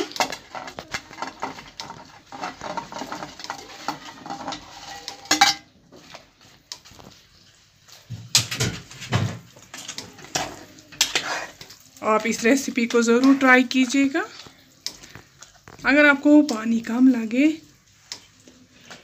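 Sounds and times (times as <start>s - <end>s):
metal spoon scraping steel: 0.2s - 5.6s.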